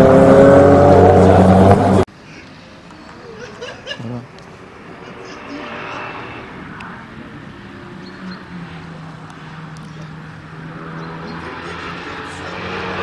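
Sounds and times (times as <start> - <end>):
small car engine driving: 0.0 - 13.0.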